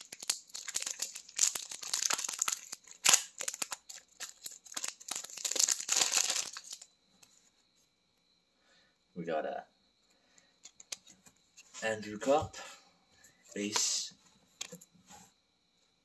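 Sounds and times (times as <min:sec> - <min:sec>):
foil wrapper crinkling: 0:00.0 - 0:06.9.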